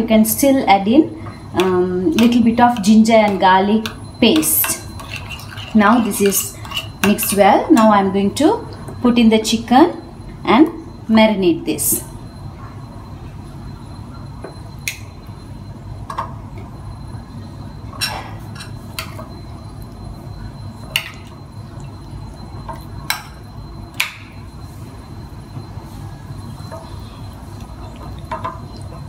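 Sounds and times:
steady low hum: 0.0s - 29.0s
spoon clinking on ceramic bowl: 1.6s - 7.9s.

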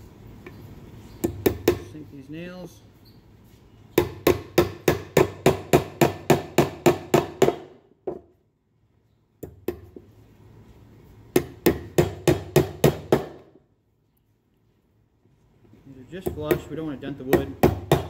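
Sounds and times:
hammer driving nails into wood: 4.0s - 8.2s, 11.3s - 13.5s.

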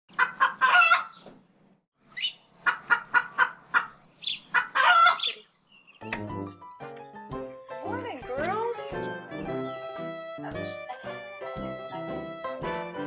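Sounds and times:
chicken clucking: 0.1s - 1.2s, 2.2s - 5.5s
music: 6.0s - 13.0s.

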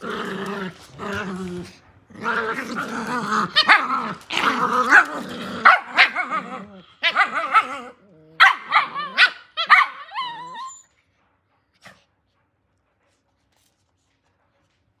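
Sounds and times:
puppy growling: 0.0s - 10.8s
puppy whining: 6.0s - 11.1s.

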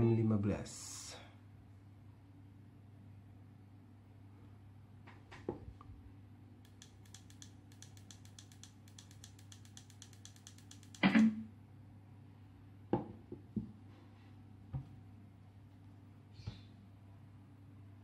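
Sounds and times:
fast run of fine ticks: 6.7s - 11.2s
clicks on speaker: 6.7s - 11.4s.

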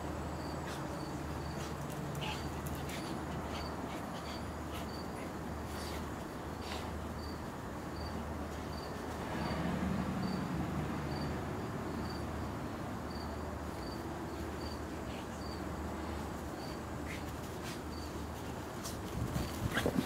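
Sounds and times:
cricket chirping: 0.3s - 5.2s, 7.2s - 14.8s, 15.4s - 15.6s.

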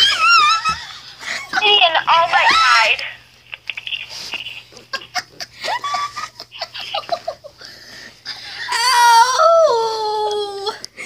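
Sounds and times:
child wailing: 8.7s - 10.9s.

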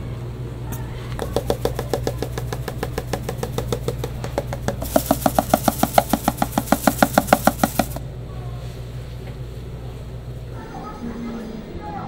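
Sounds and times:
steady low hum: 0.0s - 12.0s
herb shaker rattling: 1.1s - 8.0s.

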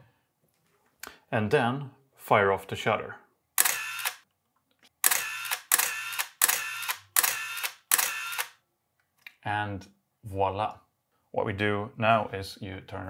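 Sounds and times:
camera shutter click: 3.6s - 4.2s, 5.0s - 8.6s
film-advance motor whir: 3.6s - 4.2s, 5.0s - 8.5s.

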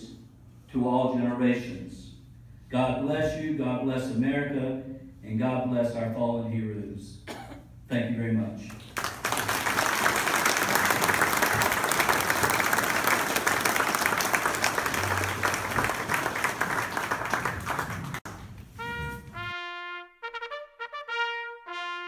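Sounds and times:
audience applauding: 8.8s - 18.6s
brass instrument sustained notes: 18.7s - 22.0s.

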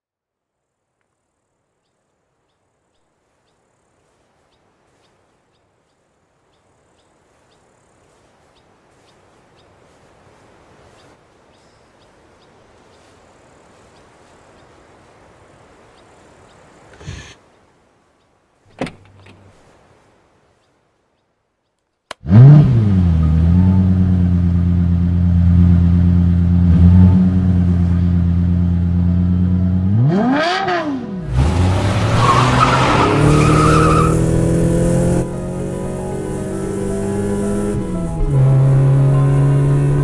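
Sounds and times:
car door handle click: 18.7s - 19.4s.

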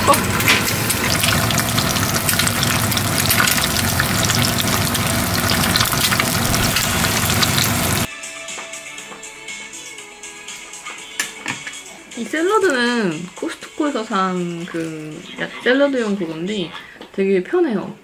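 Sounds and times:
egg sizzling in a pan: 0.0s - 8.1s
soft background music: 8.1s - 17.9s.

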